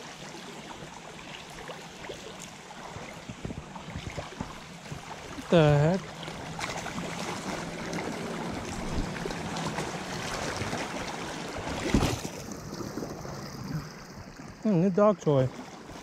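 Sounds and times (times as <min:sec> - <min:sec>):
creek water running over riffle: 0:00.0 - 0:16.0
splash in water: 0:06.1 - 0:13.9.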